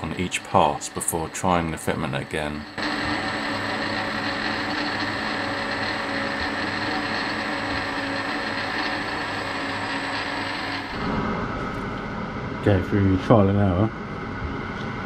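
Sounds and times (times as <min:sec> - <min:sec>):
metal lathe humming: 0:00.0 - 0:11.8.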